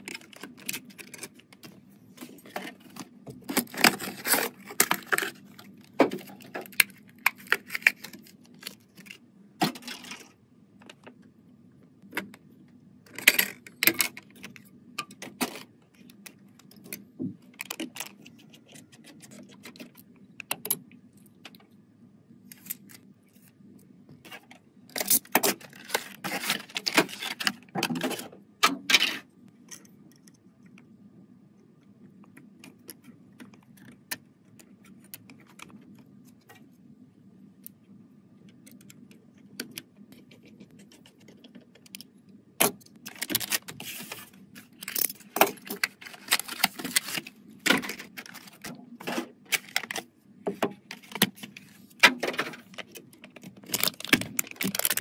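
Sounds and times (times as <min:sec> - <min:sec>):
plastic bag crinkling: 0:52.7 - 0:55.0.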